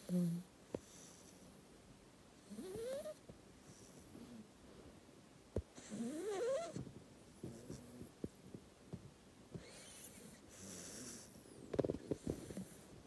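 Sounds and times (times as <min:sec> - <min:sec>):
puppy snoring: 0:00.0 - 0:01.5, 0:02.4 - 0:04.5, 0:05.8 - 0:06.8, 0:07.4 - 0:08.2, 0:09.6 - 0:13.0.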